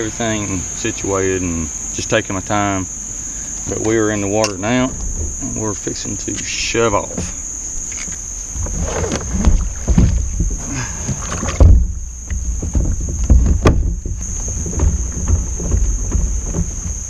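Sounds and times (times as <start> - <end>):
high insect drone: 0.0 - 17.0
knocks and bumps on plastic kayak: 3.6 - 7.8, 8.4 - 17.0.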